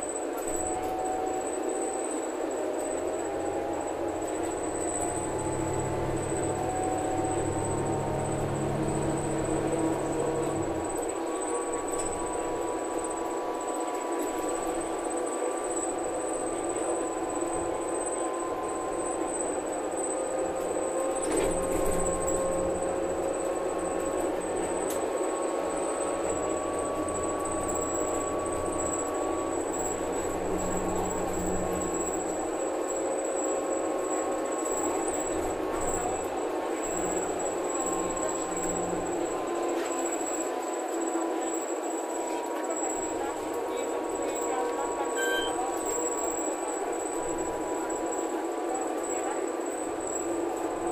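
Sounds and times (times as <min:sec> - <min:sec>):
bus engine and drivetrain running: 0:00.0 - 0:50.9
whining tones rising in pitch: 0:02.8 - 0:15.0, 0:16.0 - 0:39.5.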